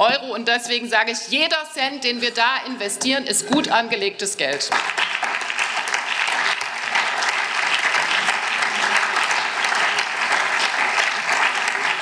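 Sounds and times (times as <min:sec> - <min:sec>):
crowd applauding: 0:04.7 - 0:12.0.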